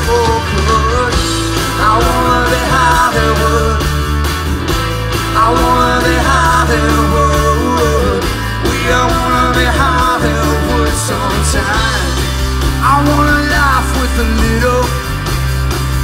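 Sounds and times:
live rock band playing: 0.0 - 16.0.

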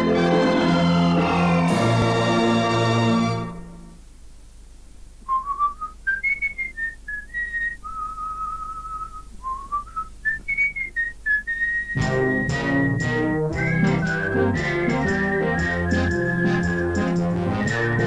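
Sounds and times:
backing music: 0.0 - 4.0, 11.9 - 18.0
person whistling a tune: 5.3 - 18.0.

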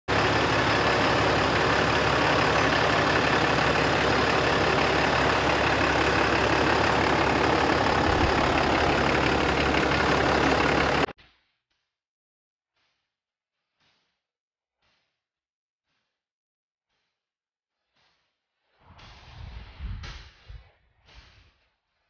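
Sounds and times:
diesel engine running: 0.0 - 11.1.

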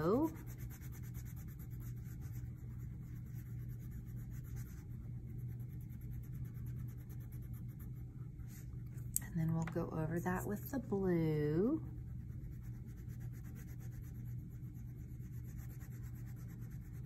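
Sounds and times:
wax crayon rubbing on paper: 0.0 - 8.1, 11.9 - 17.0
steady low hum: 0.0 - 17.0.

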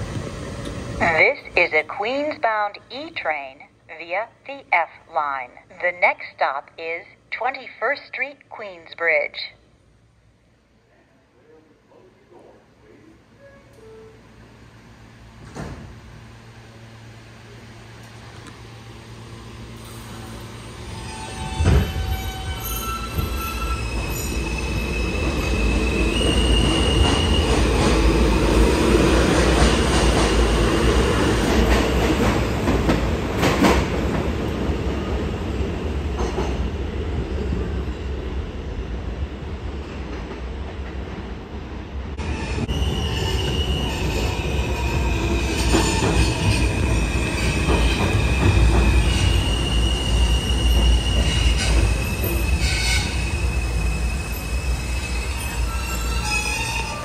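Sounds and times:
train wheels rumbling on rail: 17.8 - 57.0.

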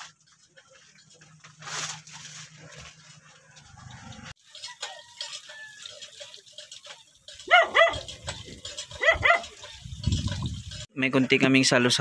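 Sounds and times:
dog barking: 7.5 - 8.1, 9.0 - 9.5.

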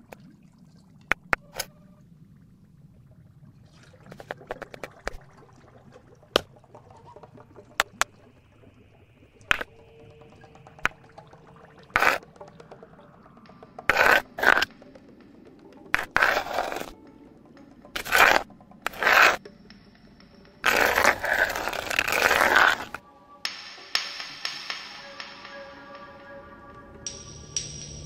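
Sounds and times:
scraping noise: 11.9 - 12.3, 13.8 - 14.8, 15.9 - 17.0, 18.0 - 19.4, 20.6 - 23.0.

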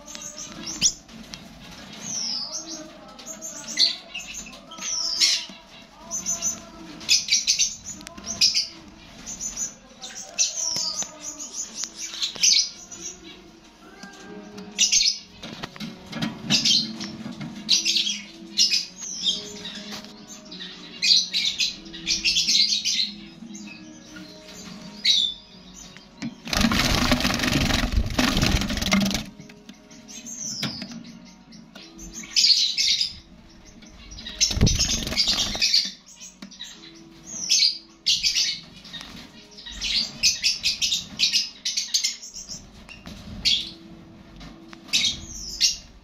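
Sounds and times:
background music: 0.0 - 46.0
sparrows chirping: 0.0 - 46.0
bird wings flapping: 26.5 - 29.3, 34.5 - 35.7.

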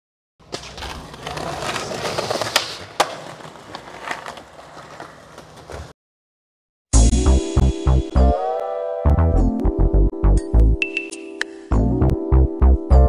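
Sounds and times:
skateboard clacks: 0.4 - 5.9
skateboard wheels rolling on paving: 0.4 - 6.0.

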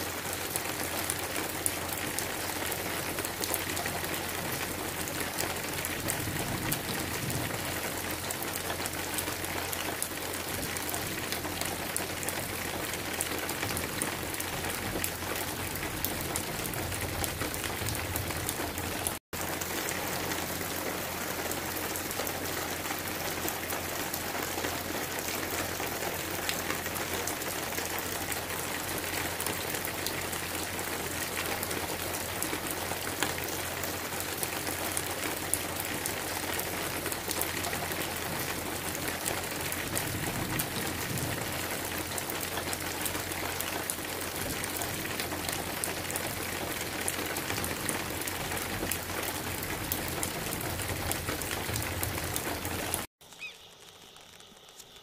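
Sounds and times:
steady rain falling: 0.0 - 55.0
raindrop ticks: 21.8 - 55.0.

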